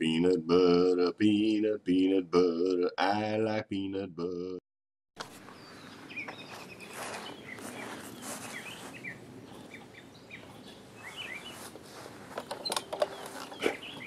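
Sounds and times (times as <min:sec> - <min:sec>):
faint outdoor background noise: 0:05.2 - 0:14.0
small birds chirping: 0:05.4 - 0:14.0.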